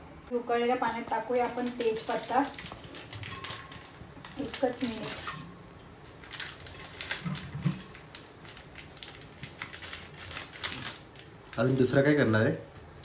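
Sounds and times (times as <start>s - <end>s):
boiling water: 0.9s - 9.6s.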